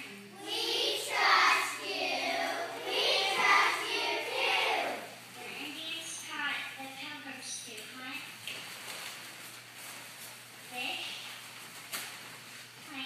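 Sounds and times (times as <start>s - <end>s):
children singing in unison: 0.4s - 5.1s.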